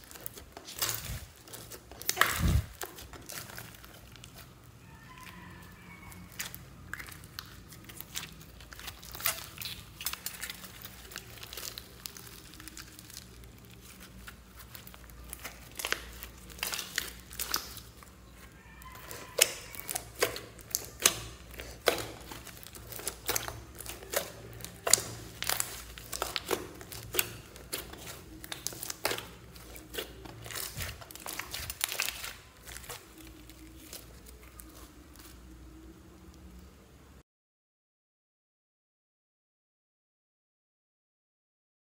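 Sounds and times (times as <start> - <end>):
slime crackling and squishing: 0.0 - 36.9.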